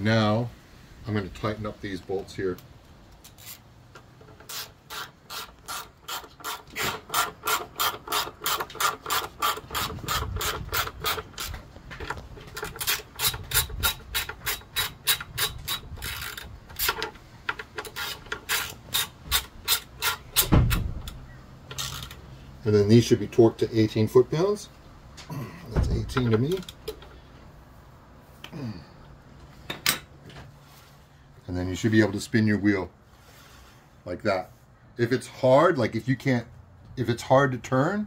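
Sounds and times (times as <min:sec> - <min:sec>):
heavy thump: 0:25.7 - 0:26.2.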